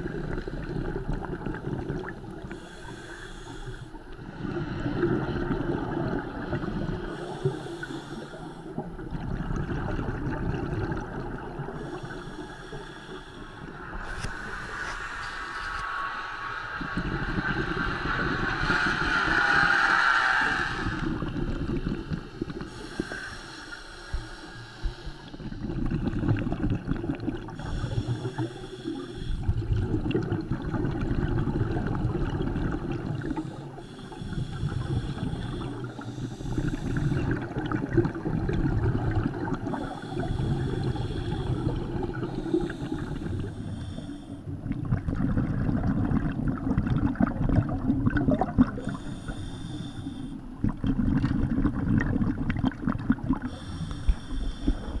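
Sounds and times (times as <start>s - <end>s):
exhaled air bubbling: 0.0s - 55.0s
regulator hiss on inhale: 2.4s - 4.9s, 7.0s - 8.8s, 11.7s - 16.8s, 18.1s - 25.8s, 27.5s - 29.7s, 33.0s - 37.6s, 39.6s - 44.5s, 48.7s - 50.6s, 53.4s - 55.0s.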